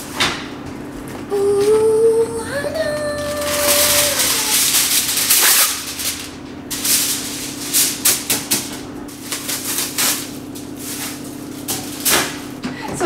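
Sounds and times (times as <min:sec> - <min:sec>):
foil crackling: 0:00.0 - 0:12.6
aluminium foil crinkling: 0:03.0 - 0:12.4.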